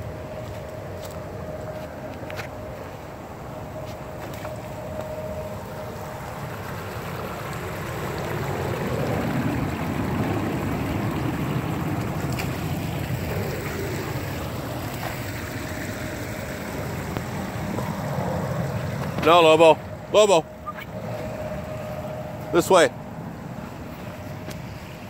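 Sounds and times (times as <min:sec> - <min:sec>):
stream rushing over rocks: 0:06.1 - 0:21.8.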